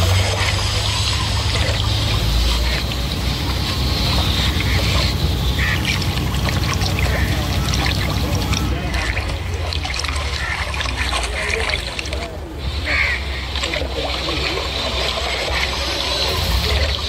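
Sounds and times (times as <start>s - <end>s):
boat engine rumble: 0.0s - 17.0s
water washing and splashing: 0.0s - 17.0s.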